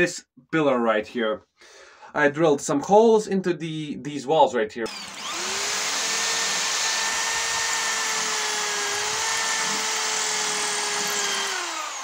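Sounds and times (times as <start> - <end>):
electric drill boring into brick: 4.9 - 12.0.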